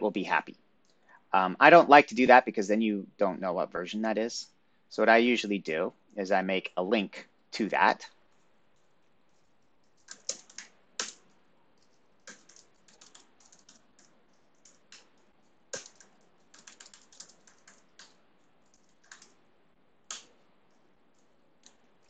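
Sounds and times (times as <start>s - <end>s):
typing on computer keyboard: 8.3s - 22.0s.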